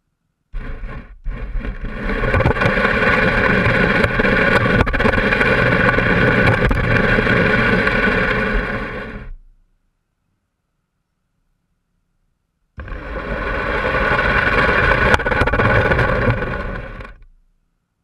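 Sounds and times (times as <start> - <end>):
three-wheeler engine running: 0.6 - 9.3, 12.8 - 17.2.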